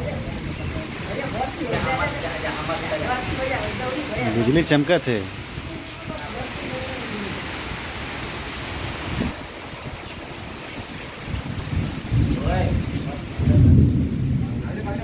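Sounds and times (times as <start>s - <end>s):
heavy rain pouring: 0.0s - 15.0s
deep rumble of thunder: 11.1s - 15.0s.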